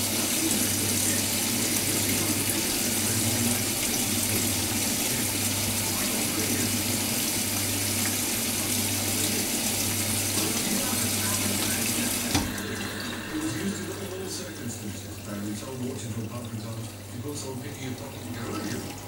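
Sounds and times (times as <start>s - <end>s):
water rushing into washing machine: 0.0s - 19.0s.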